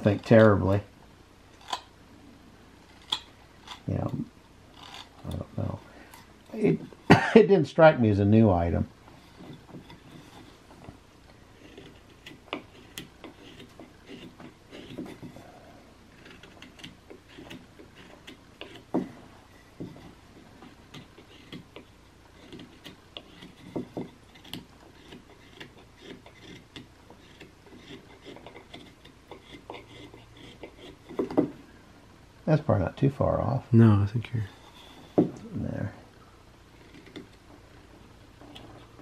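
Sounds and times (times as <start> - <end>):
knife whittling wood: 2.8 - 7.0, 9.2 - 31.6.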